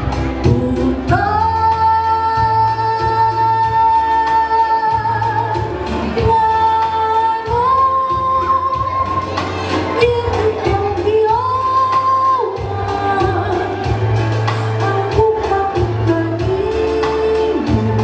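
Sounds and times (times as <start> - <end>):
backing music: 0.0 - 18.0
woman singing through microphone: 0.0 - 18.0.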